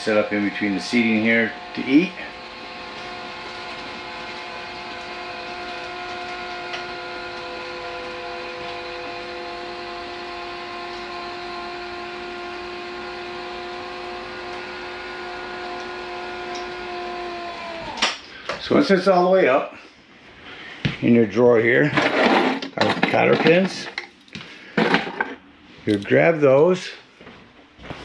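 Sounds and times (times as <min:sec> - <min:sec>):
electric motor whining: 0:00.0 - 0:18.2.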